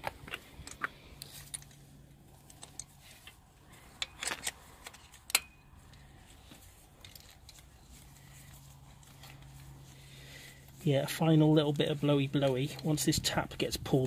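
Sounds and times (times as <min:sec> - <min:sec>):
metallic clicks of hand tools: 0:04.0 - 0:06.1.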